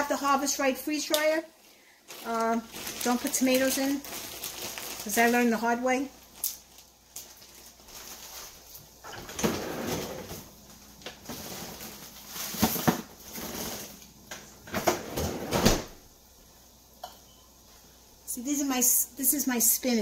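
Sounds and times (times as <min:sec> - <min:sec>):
container rustling and crinkling: 0:02.1 - 0:14.1.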